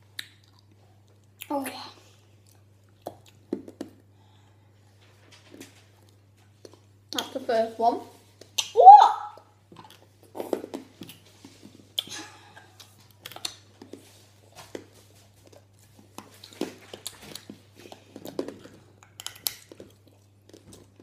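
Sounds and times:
mouth clicks and smacks: 0:08.4 - 0:11.2.

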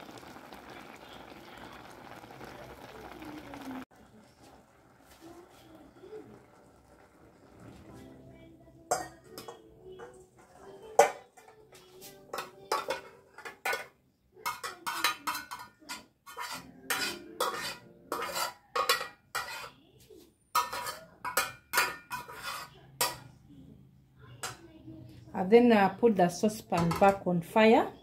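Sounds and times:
spoon scraping a metal saucepan: 0:08.9 - 0:23.4.

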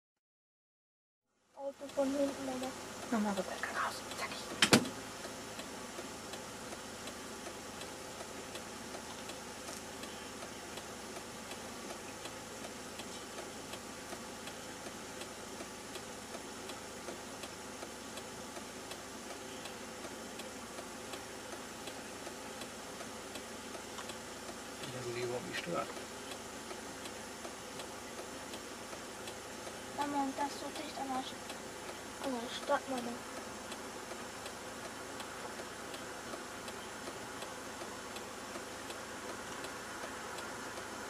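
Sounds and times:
mechanical hum and hiss: 0:01.5 - 0:41.0
light ticking: 0:01.7 - 0:41.0.

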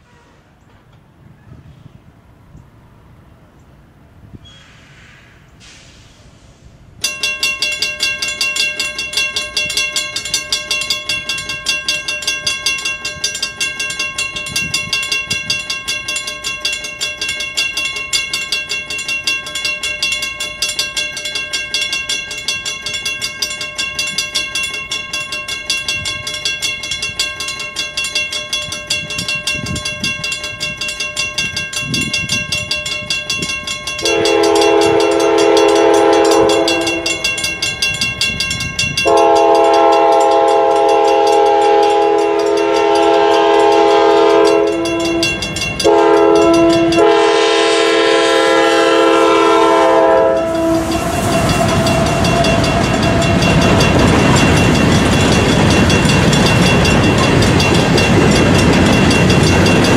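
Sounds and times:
mechanical crossing bells ringing: 0:07.0 - 0:59.9
locomotive horn: 0:34.0 - 0:37.3, 0:39.0 - 0:54.0.

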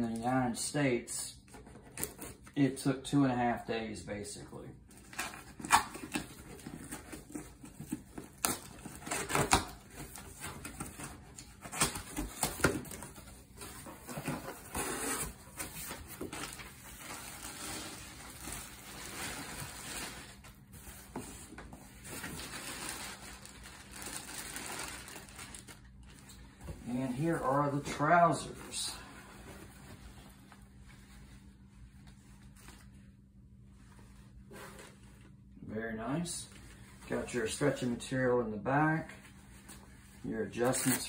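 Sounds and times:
plastic packaging rustling: 0:05.0 - 0:28.8.

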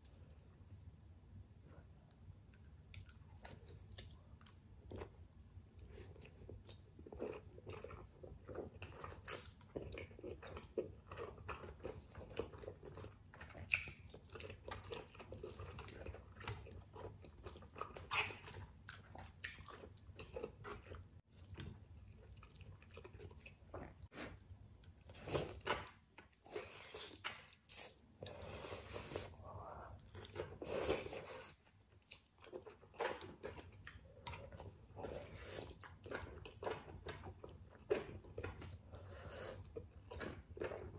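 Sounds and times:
chewing and slurping noodles: 0:05.8 - 0:24.4, 0:25.0 - 0:40.9.

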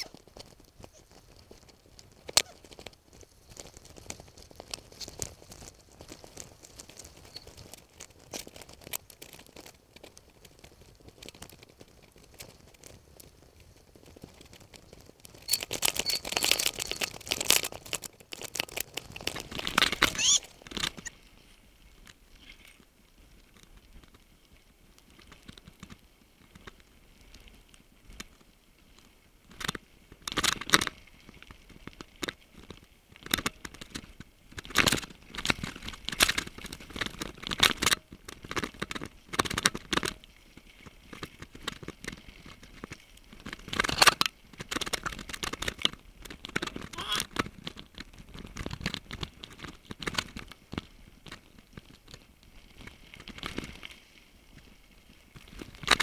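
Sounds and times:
mountain bike rattling on trail: 0:00.0 - 0:21.2, 0:28.1 - 0:56.0.

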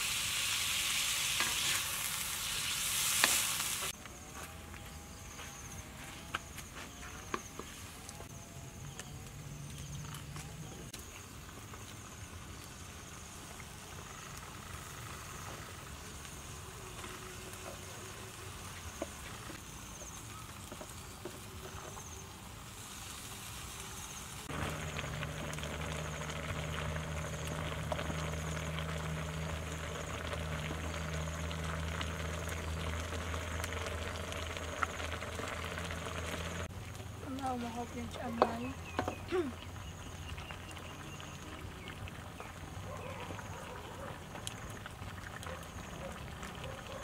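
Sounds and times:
food sizzling in a wok: 0:00.0 - 0:04.0, 0:11.0 - 0:36.7
insects buzzing: 0:00.0 - 0:46.1
low hum: 0:24.4 - 0:38.2.

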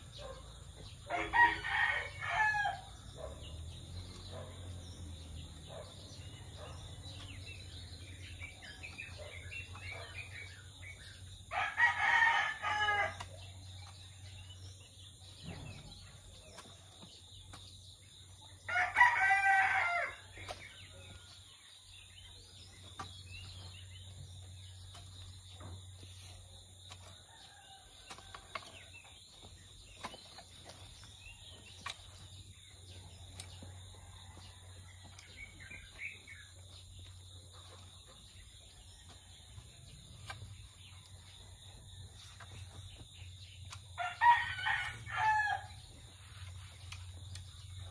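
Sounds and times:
rooster crowing: 0:11.5 - 0:13.2, 0:18.7 - 0:20.2, 0:44.0 - 0:45.8.

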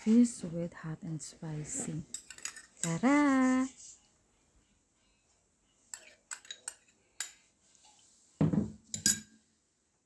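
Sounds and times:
fork clinking on glass dish: 0:05.9 - 0:07.4, 0:08.9 - 0:09.4.

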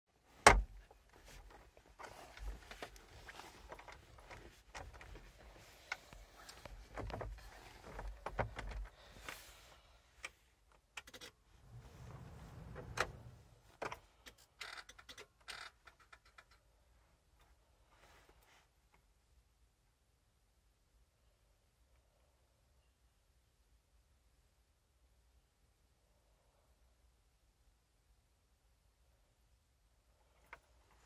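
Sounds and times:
faint handling knocks and rustles: 0:00.3 - 0:09.6.

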